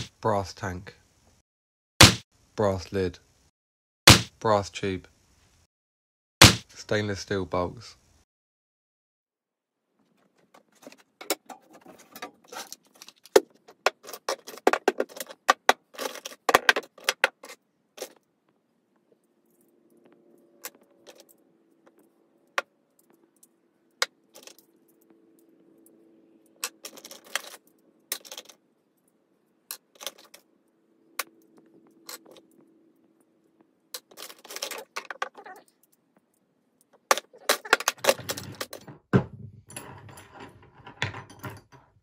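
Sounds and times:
small brass parts clinking: 19.4 - 30.5, 36.9 - 42.0.

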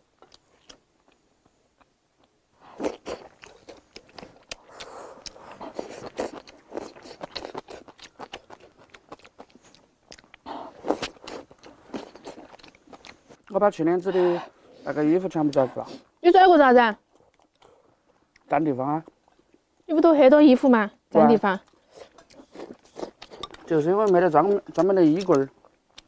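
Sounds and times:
person chewing food: 0.2 - 13.5, 17.0 - 19.6, 21.6 - 26.0.

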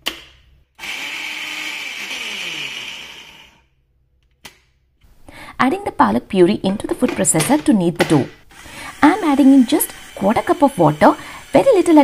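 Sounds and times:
food processor chopping: 0.8 - 3.6, 8.6 - 12.0.

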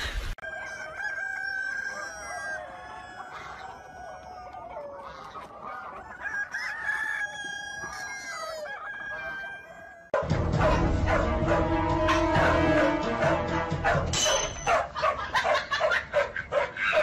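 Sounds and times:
chickens clucking: 0.0 - 10.8, 14.7 - 17.0
roosters crowing: 0.4 - 17.0
loud music: 10.2 - 14.3.

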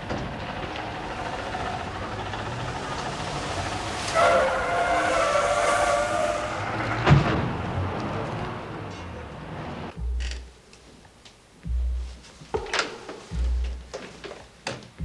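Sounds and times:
street traffic: 0.0 - 15.0
wavering squeal: 3.3 - 6.8.

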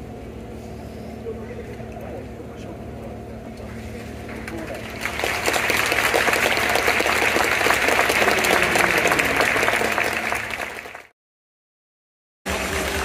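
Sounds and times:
crowd clapping: 4.2 - 11.2, 12.5 - 13.0.

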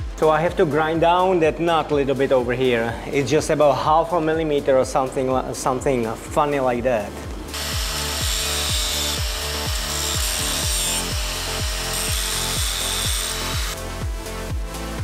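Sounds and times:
background music with beat: 0.0 - 15.0
grinder disc on metal: 7.5 - 13.8.

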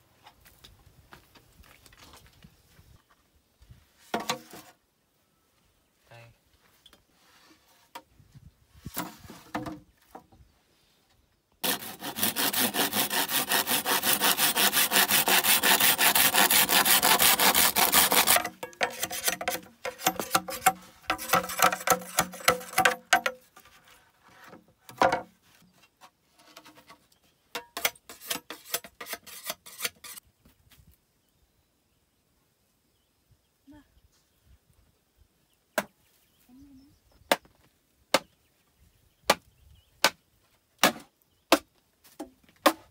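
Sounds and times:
hand saw cutting bamboo: 11.6 - 23.4, 27.8 - 30.2.

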